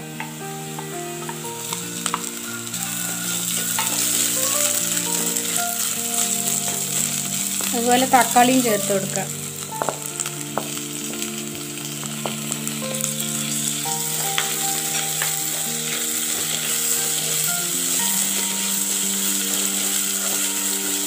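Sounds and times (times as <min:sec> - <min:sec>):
vegetables sizzling in oil: 0:00.0 - 0:21.0
wooden spatula scraping a pot: 0:13.4 - 0:21.0.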